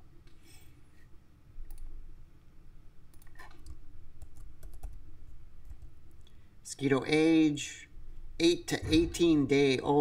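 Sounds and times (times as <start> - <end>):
keyboard and mouse clicks: 1.7 - 1.9.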